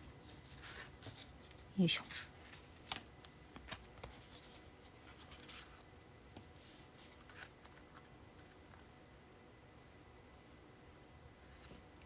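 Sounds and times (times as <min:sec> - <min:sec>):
card sliding rustle: 0:02.1 - 0:07.8.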